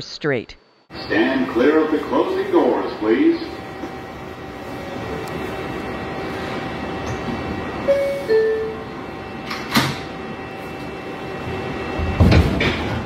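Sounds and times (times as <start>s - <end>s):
train humming: 0.9s - 13.0s
two-note door chime: 7.9s - 8.9s
doors shutting with a knock: 12.0s - 13.0s.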